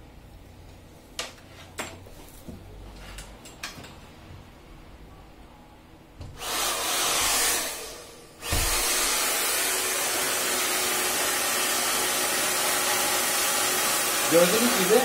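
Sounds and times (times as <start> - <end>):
hair dryer running: 6.4 - 15.0
hair dryer thump: 8.4 - 9.3.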